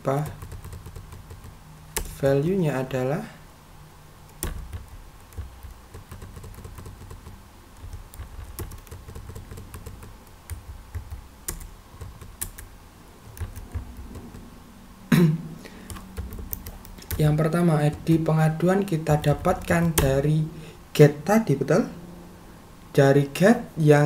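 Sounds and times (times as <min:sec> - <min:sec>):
keyboard typing: 0:00.0 - 0:02.2, 0:04.3 - 0:14.5, 0:15.8 - 0:18.3, 0:19.0 - 0:20.3.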